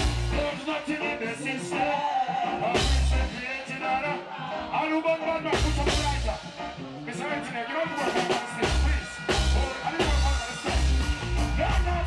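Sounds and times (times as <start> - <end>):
strong bass notes: 0.0 - 0.8, 2.8 - 3.4, 5.4 - 12.0
man singing reggae: 0.0 - 12.0
reggae backing band: 0.0 - 12.0.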